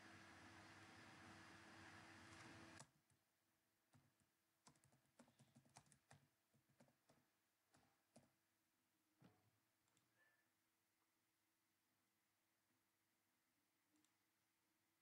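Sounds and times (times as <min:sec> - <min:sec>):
faint steady hum: 0:00.0 - 0:02.8.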